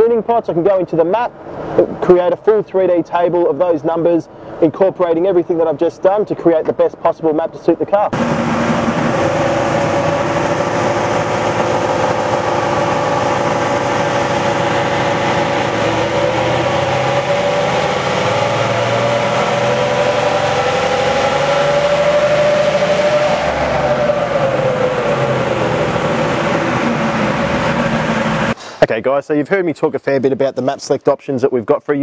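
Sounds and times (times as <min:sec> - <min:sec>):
diesel engine running under load: 0:08.2 - 0:28.6.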